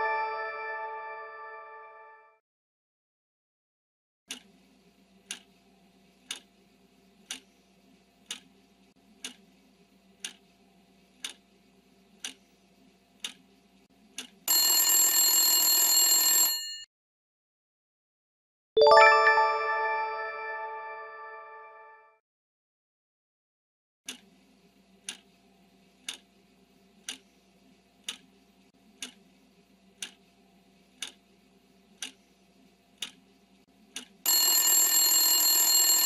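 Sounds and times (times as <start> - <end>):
bright chime: 0.0 - 1.9, 18.8 - 21.7
alarm bell ringing: 0.0 - 2.1, 14.5 - 16.8, 34.3 - 36.0
clock ticking: 4.3 - 4.5, 5.3 - 5.5, 6.2 - 6.5, 7.2 - 7.4, 8.2 - 8.5, 9.2 - 9.4, 10.2 - 10.4, 11.2 - 11.4, 12.2 - 12.4, 13.2 - 13.4, 14.2 - 14.4, 24.1 - 24.3, 26.0 - 26.3, 27.0 - 27.2, 28.0 - 28.3, 29.0 - 29.2, 30.0 - 30.2, 31.0 - 31.2, 32.0 - 32.2, 33.0 - 33.2, 34.0 - 34.2.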